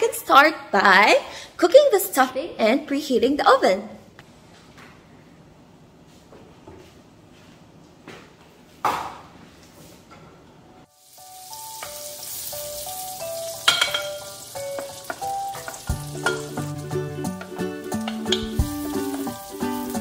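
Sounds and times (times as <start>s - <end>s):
light background music: 10.8s - 20.0s
butter sizzling in a pan: 10.9s - 20.0s.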